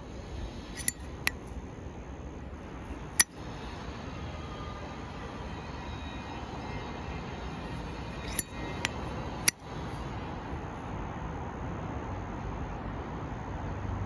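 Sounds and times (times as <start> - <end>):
lighter clicks: 0.8 - 1.0, 8.3 - 8.9
lighter lid snapping shut: 0.8 - 1.0, 8.3 - 8.5.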